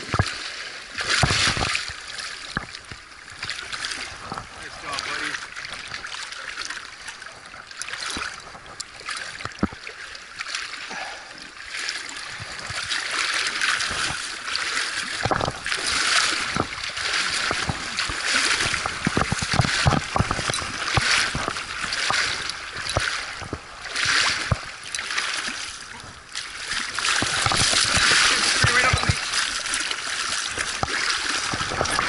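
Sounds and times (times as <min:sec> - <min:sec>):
feet splashing through shallow water: 0:00.0 - 0:32.0
rushing river water: 0:00.0 - 0:32.0.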